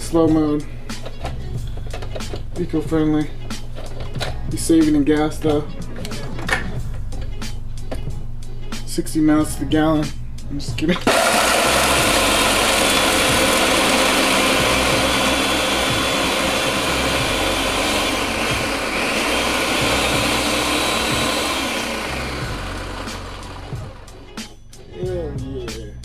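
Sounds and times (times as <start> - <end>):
electric blender grinding: 11.0 - 24.4.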